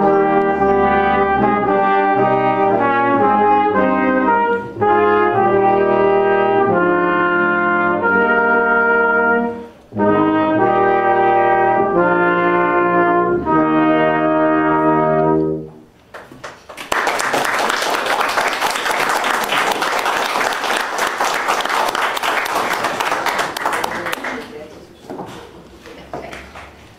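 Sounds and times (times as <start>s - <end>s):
brass instruments playing chords: 0.0s - 16.0s
audience applause: 16.1s - 24.7s.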